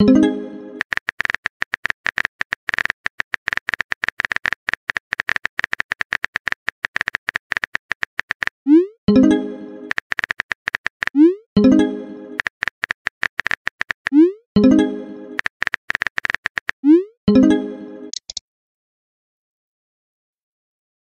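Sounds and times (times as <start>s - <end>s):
message sent alert: 0.0s - 0.8s
phone keyboard typing clicks: 0.8s - 8.6s, 9.9s - 11.2s, 12.4s - 14.2s, 15.4s - 16.8s, 18.1s - 18.4s.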